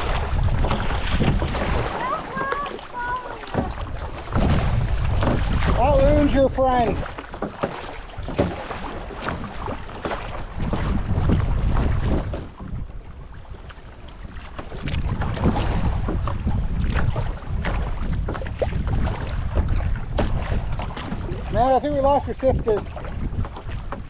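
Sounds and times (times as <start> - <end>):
paddle splashing in water: 0.0 - 24.0
wind buffeting microphone: 0.0 - 24.0.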